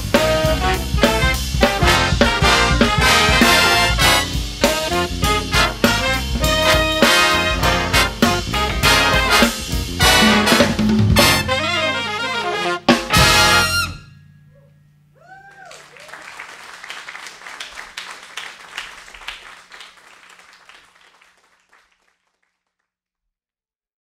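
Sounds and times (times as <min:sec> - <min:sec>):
jazz big band chord: 0:00.0 - 0:14.2
audience whooping: 0:14.6 - 0:22.1
audience applauding: 0:15.2 - 0:22.7.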